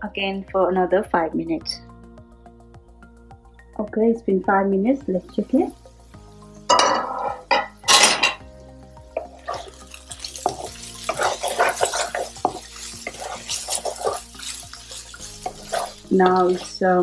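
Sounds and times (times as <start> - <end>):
spatula scraping frying pan: 6.7 - 8.4, 9.2 - 17.0.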